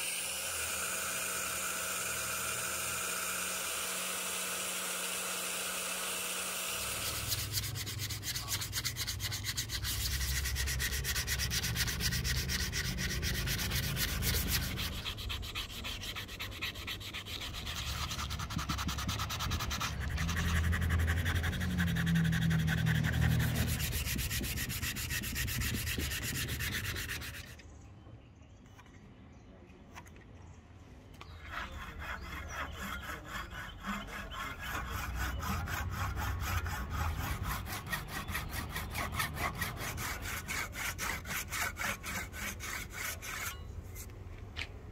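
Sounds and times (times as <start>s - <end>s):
power sander motor whir: 0.0s - 7.7s
sandpaper sanding wood: 0.0s - 27.6s, 31.4s - 44.1s.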